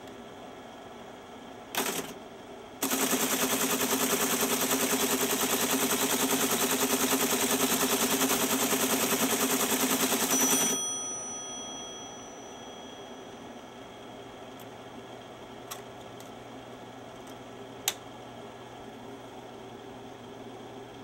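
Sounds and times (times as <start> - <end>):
teletype rapid mechanical clatter: 1.7 - 2.2, 2.8 - 10.8.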